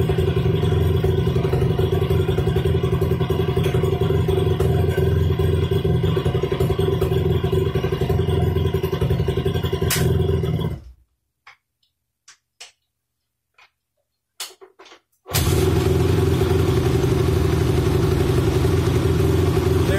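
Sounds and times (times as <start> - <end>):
motorcycle engine running: 0.0 - 10.9, 15.3 - 19.9.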